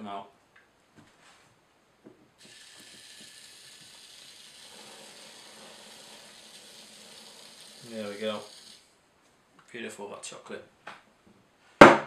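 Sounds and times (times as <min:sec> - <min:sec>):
whipped cream spraying hiss: 0:02.4 - 0:08.9.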